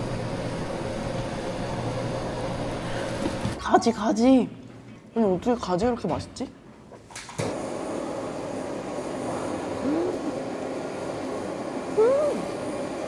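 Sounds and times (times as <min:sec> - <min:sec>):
woman humming while chewing: 0:09.8 - 0:10.3, 0:12.0 - 0:12.4.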